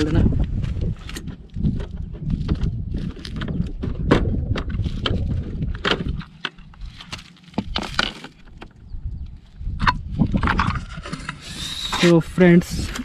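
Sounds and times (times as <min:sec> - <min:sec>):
plastic panel clicking and rattling: 0:01.0 - 0:06.8.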